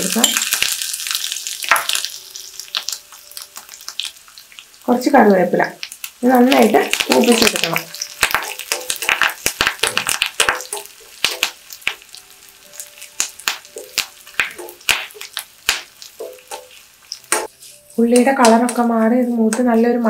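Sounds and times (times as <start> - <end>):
spices crackling and popping in oil: 0.0 - 20.0
steel spoon stirring in pan: 6.6 - 12.1, 12.8 - 19.6.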